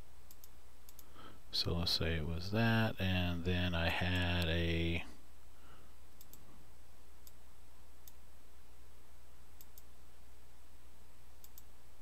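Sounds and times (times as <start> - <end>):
steady low hum: 0.0 - 12.0
computer mouse clicking: 0.3 - 1.1, 6.2 - 6.4, 9.6 - 9.9, 11.4 - 11.7.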